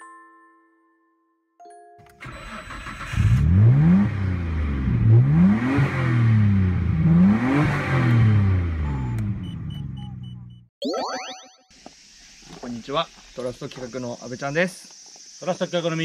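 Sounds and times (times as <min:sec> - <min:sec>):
car engine revving: 0:02.2 - 0:10.6
electronic chime tones: 0:08.8 - 0:11.7.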